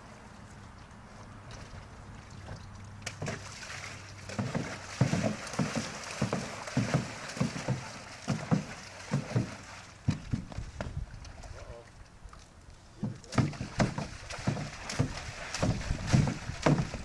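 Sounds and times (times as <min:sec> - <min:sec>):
water sloshing in a plastic tank: 0:00.0 - 0:17.0.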